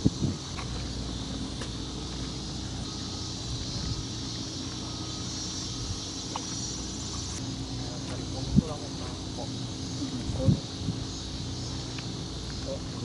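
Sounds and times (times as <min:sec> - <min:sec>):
wind rumble on microphone: 0:00.0 - 0:01.0, 0:03.4 - 0:04.3, 0:08.2 - 0:09.4, 0:10.0 - 0:12.1
high even hiss: 0:00.0 - 0:13.0.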